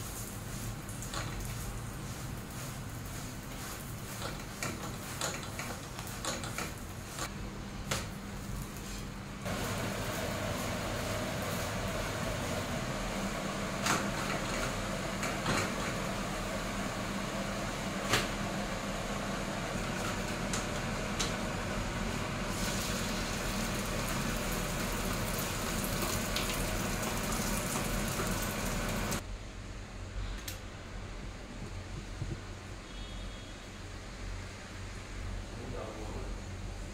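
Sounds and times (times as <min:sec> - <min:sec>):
food cooking on griddle: 0:00.0 - 0:07.3, 0:20.8 - 0:29.2
gas stove burner hissing: 0:00.0 - 0:29.2.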